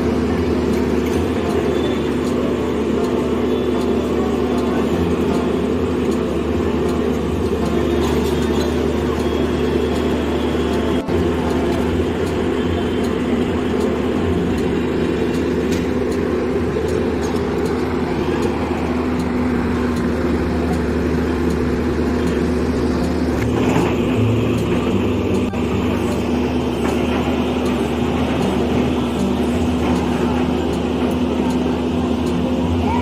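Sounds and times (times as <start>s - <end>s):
diesel engine running: 0.0s - 33.0s.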